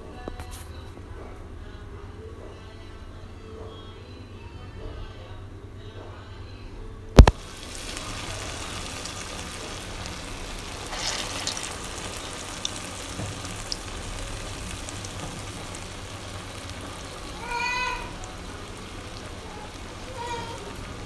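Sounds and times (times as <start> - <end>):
batter sizzling in hot oil: 7.2 - 21.0.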